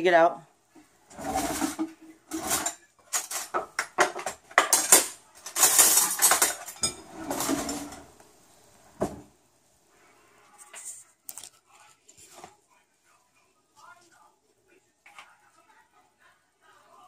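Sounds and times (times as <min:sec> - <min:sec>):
cutlery clattering in drawer: 0:01.1 - 0:08.1.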